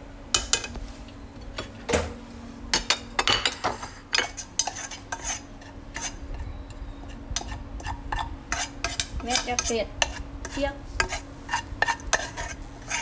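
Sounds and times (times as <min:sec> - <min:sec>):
faint steady hum: 0:00.0 - 0:13.0
dishes and utensils clinking: 0:02.7 - 0:05.4.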